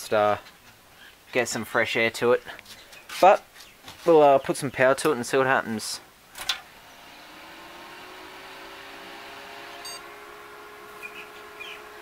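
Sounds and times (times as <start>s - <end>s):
computer fans whirring: 6.4s - 12.0s
brief high tone: 9.8s - 10.1s.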